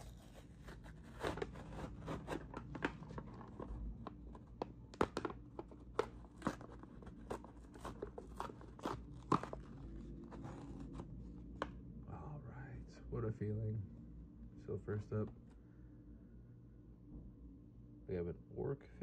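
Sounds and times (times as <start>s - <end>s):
blister pack paper backing ripping: 0.0s - 11.1s.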